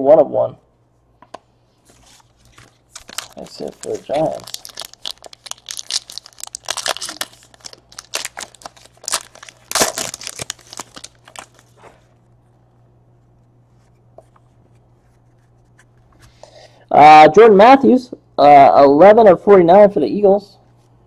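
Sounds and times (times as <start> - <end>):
faint low hum: 0.0 - 21.0
foil wrapper tearing and crinkling: 2.0 - 11.7.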